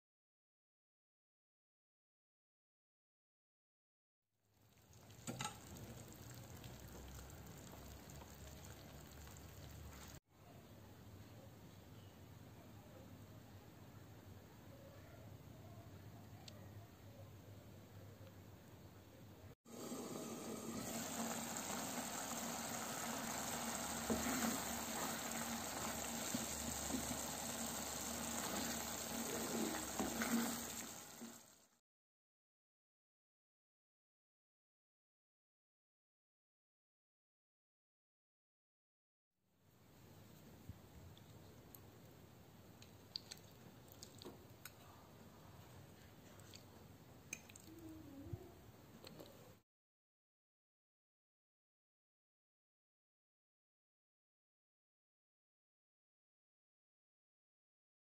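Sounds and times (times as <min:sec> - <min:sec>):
cheese sizzling faintly: 0:04.6 - 0:10.2, 0:19.7 - 0:31.8
wooden spoon stirring: 0:21.1 - 0:30.9.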